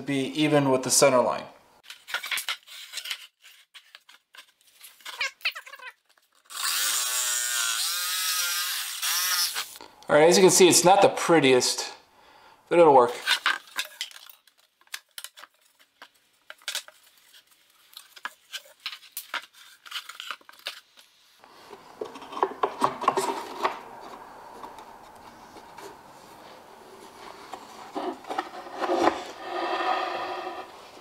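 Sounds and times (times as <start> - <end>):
wood rubbing and scraping: 21.5 - 31.0.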